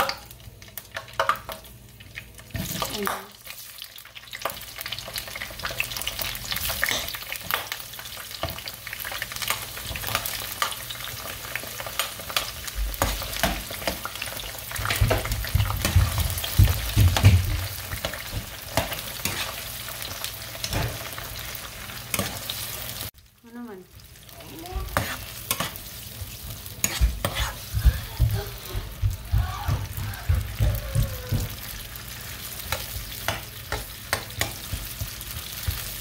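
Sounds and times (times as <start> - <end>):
onions sizzling in oil: 0.0 - 30.6, 31.3 - 36.0
spoon stirring: 24.9 - 27.8.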